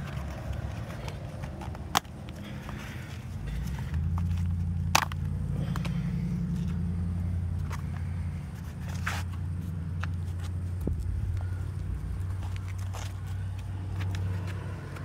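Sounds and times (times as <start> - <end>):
car engine idling: 0.0 - 15.0
shoe scuffing and tapping on asphalt: 7.5 - 15.0.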